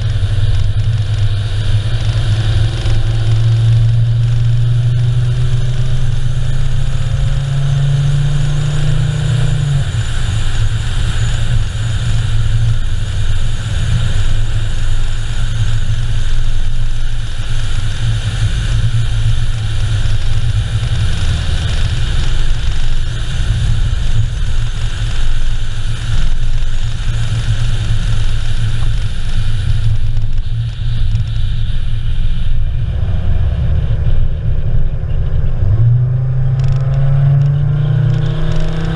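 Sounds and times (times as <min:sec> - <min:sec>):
car engine and road rumble: 0:00.0 - 0:38.9.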